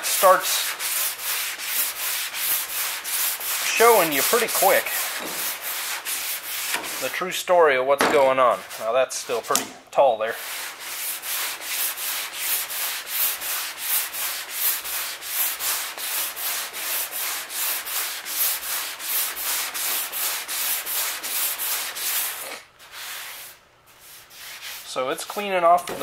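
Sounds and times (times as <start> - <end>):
sandpaper rasping on filler: 0.0 - 7.5, 8.2 - 9.6, 10.3 - 25.6.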